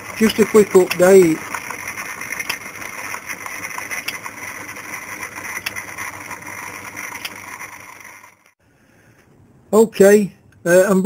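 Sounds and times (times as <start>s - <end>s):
lathe whirring: 0.0s - 8.6s.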